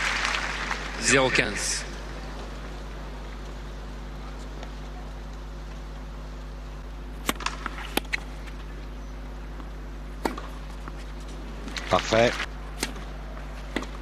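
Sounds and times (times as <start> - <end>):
steady low hum: 0.0 - 14.0
faint crowd noise: 0.7 - 6.8
tennis ball hit with racquets: 7.2 - 8.8, 9.6 - 12.0, 12.7 - 14.0.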